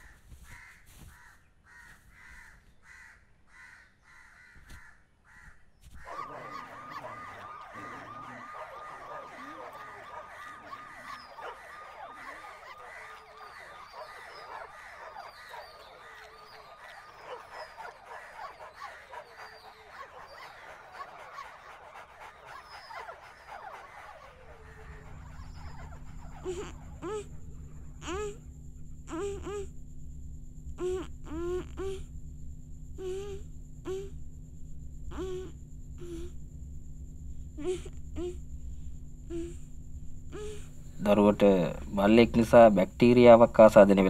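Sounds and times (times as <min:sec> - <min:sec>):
chorus of animal cries and squeals: 0:06.0 - 0:28.5.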